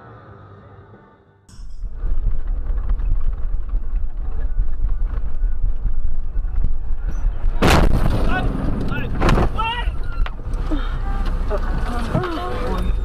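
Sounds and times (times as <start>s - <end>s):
vehicle road rumble: 0.0s - 13.0s
sudden loud noise burst: 1.5s - 9.8s
wind buffeting microphone: 1.5s - 10.7s.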